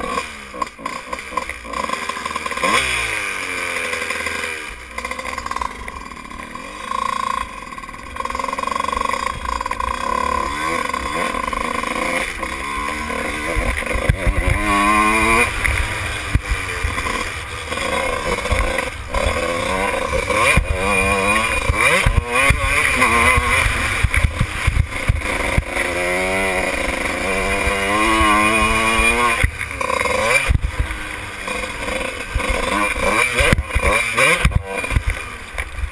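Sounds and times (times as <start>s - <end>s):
motocross engine revving: 0.0s - 35.9s.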